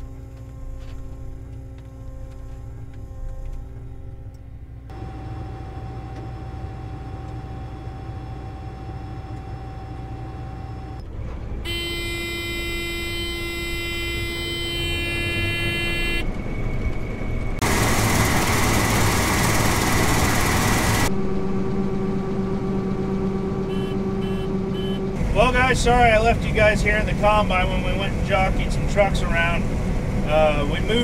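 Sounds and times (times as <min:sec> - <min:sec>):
thin steady whine: 0:00.0 - 0:11.0, 0:11.7 - 0:31.0
combine engine hum: 0:00.0 - 0:31.0
horn-like tone: 0:11.6 - 0:16.4, 0:23.2 - 0:25.6
loud rushing noise: 0:17.6 - 0:22.2.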